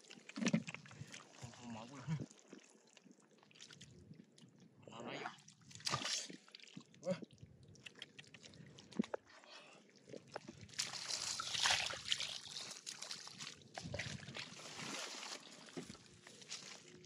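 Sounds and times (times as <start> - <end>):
water splashing in bucket: 5.7 - 6.8, 10.6 - 16.0.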